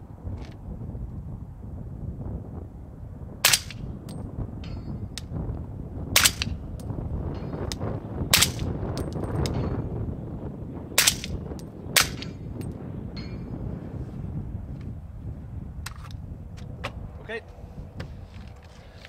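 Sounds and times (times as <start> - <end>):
wind noise on microphone: 0.0 - 19.0
suppressed rifle shots: 3.4 - 3.8, 6.2 - 6.6, 8.3 - 8.7, 11.0 - 11.4, 12.0 - 12.4.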